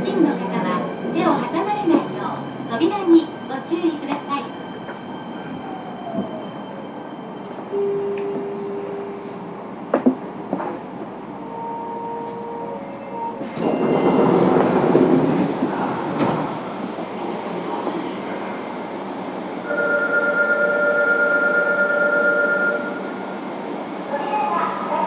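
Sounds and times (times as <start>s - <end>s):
train running noise: 0.0s - 25.0s.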